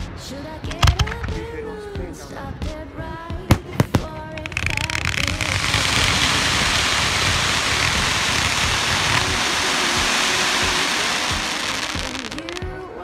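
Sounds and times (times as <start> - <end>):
sharp bangs: 3.5 - 12.8
firework crackling hiss: 3.5 - 13.0
melodic music: 3.5 - 13.0.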